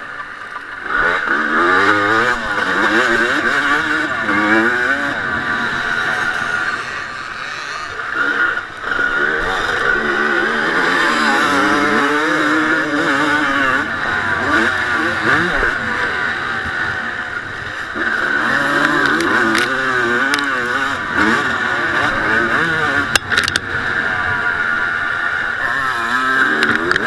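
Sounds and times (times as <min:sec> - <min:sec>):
motorcycle engine revving: 0:00.0 - 0:27.0
sharp clicks: 0:23.1 - 0:23.7.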